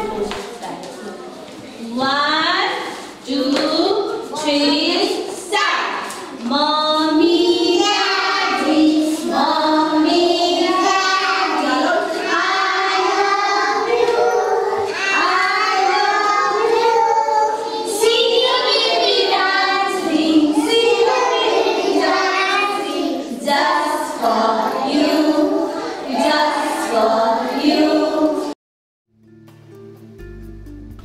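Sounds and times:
children singing together: 0:00.0 - 0:00.5, 0:06.2 - 0:28.6.

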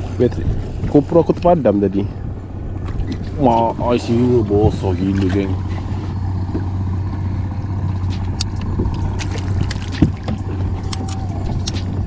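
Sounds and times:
low rumble: 0:00.0 - 0:12.0
short knocks on hull: 0:02.8 - 0:06.8, 0:08.0 - 0:10.8
water slapping against kayak hull: 0:02.8 - 0:06.8, 0:07.8 - 0:12.0.

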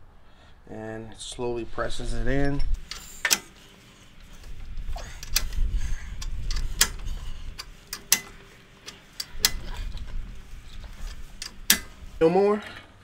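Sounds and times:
ball joint press metallic clicks: 0:04.3 - 0:12.0.

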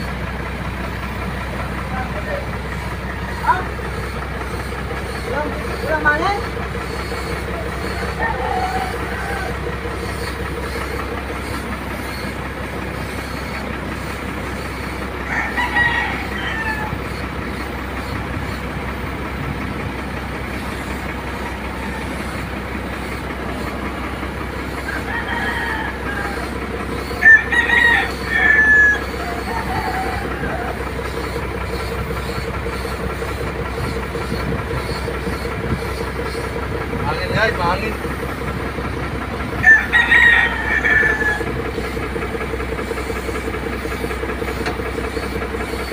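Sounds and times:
machine drone with low hum: 0:00.0 - 0:45.9
rooster crowing: 0:07.5 - 0:10.1, 0:15.2 - 0:17.2, 0:21.4 - 0:22.4, 0:24.6 - 0:31.3, 0:39.6 - 0:42.0.

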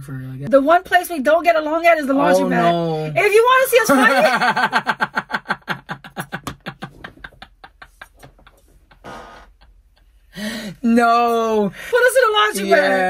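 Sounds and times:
women laughing hard: 0:03.9 - 0:09.7
breathy gasp: 0:10.3 - 0:10.8.

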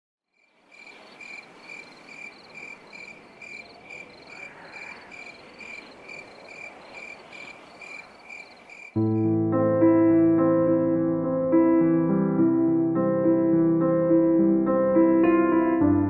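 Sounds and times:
faint night ambience hiss: 0:00.3 - 0:09.0
crickets chirping: 0:00.3 - 0:09.2.

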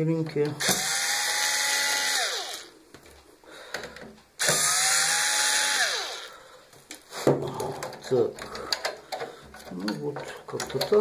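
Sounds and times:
electric screwdriver motor whine: 0:00.6 - 0:02.7, 0:04.4 - 0:06.3.

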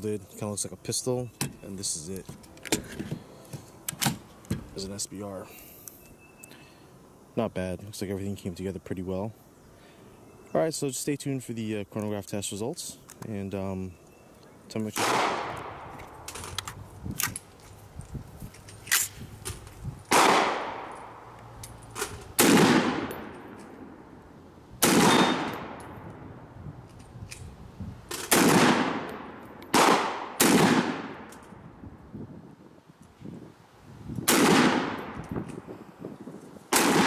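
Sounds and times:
rifle gunshots with echo: 0:15.0 - 0:15.9, 0:20.1 - 0:21.0, 0:22.4 - 0:23.9, 0:24.8 - 0:26.0, 0:28.3 - 0:31.3, 0:34.3 - 0:35.2, 0:36.7 - 0:37.0.

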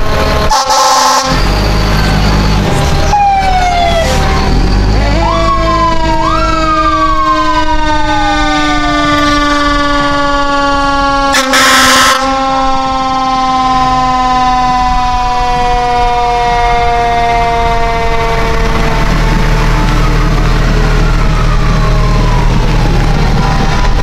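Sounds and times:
fire engine siren: 0:00.0 - 0:24.0
truck engine running low: 0:00.0 - 0:24.0
loud horn blasts: 0:00.4 - 0:01.5, 0:09.1 - 0:19.3.

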